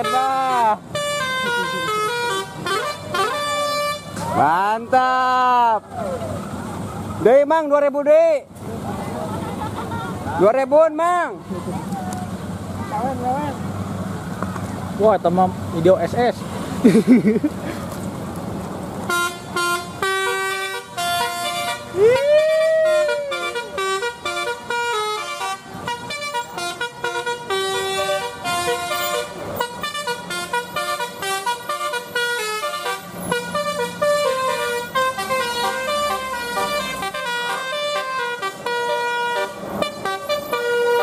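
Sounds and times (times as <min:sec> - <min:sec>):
musical air horn playing a tune: 0:00.0 - 0:04.2, 0:19.1 - 0:41.0.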